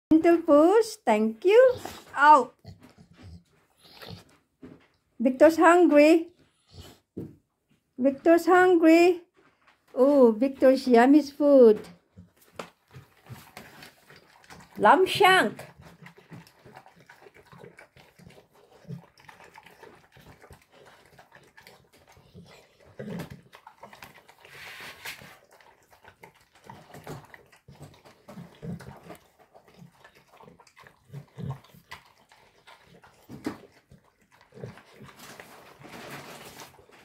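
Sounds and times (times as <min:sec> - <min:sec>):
dog chewing and licking: 0:01.7 - 0:05.1, 0:11.8 - 0:37.0.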